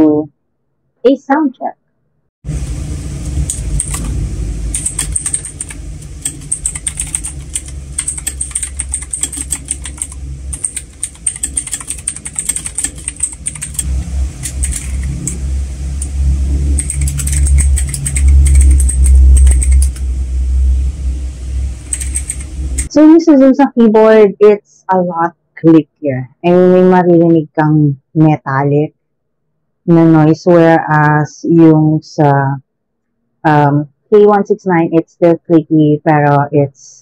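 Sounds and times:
fast typing on mechanical keyboard: 3.5 - 4.1, 4.7 - 15.4, 16.7 - 20.0, 21.8 - 22.9.

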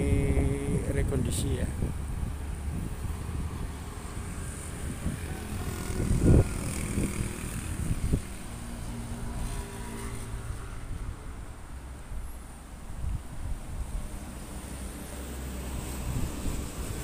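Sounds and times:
wind buffeting microphone: 0.0 - 9.5, 15.7 - 17.0.

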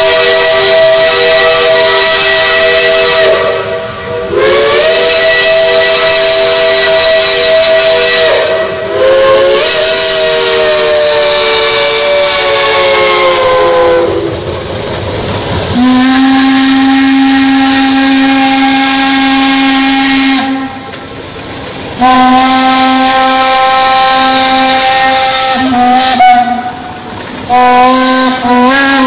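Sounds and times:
steam whistle blasts: 0.0 - 14.5, 15.7 - 21.2, 22.0 - 29.0
steam hiss: 0.0 - 29.0.

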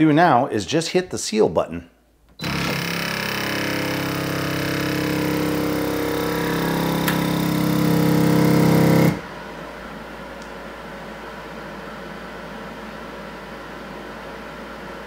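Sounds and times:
vacuum pump motor humming: 2.4 - 9.3.

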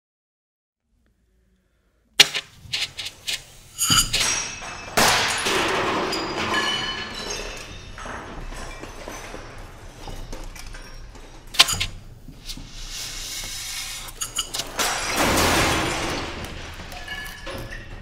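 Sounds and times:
sharp clicks and knocks: 2.2 - 5.8, 10.3 - 12.7
ringing metallic high tones: 2.7 - 5.0
loud hissing noise: 11.6 - 14.7.

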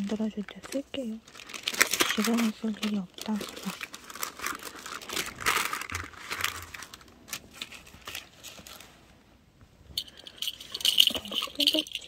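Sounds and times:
paper and plastic packaging crinkling: 0.0 - 9.1.

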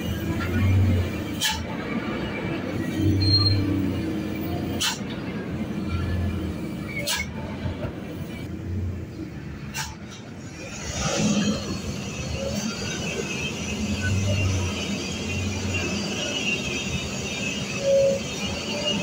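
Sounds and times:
truck diesel engine droning: 0.0 - 19.0.

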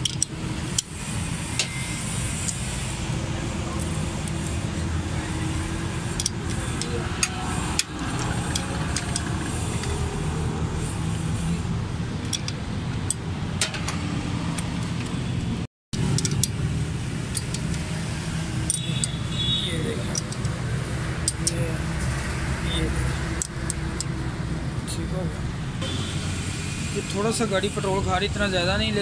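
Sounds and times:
hand tools clicking on metal: 0.0 - 0.9, 5.8 - 10.0, 12.2 - 15.1, 16.1 - 17.9, 18.6 - 19.2, 20.0 - 20.6, 21.2 - 21.7, 23.3 - 24.2.

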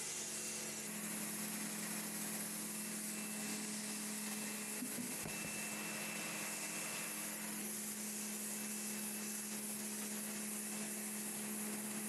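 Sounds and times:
pressure washer pump hum: 0.0 - 12.0
water jet hissing on stone: 6.2 - 12.0.

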